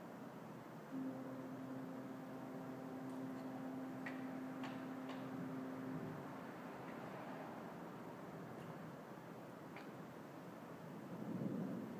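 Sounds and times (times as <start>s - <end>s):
faint hiss: 0.0s - 11.9s
ship's horn low note: 0.9s - 8.4s.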